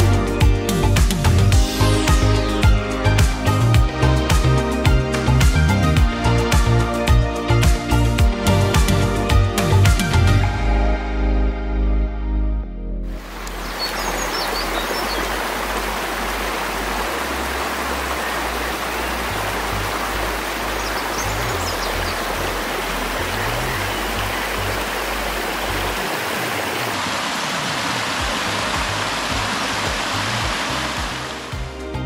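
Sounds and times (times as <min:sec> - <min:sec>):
music bass notes: 0:00.0 - 0:14.2, 0:28.5 - 0:32.0
brook splashing over rocks: 0:13.2 - 0:31.6.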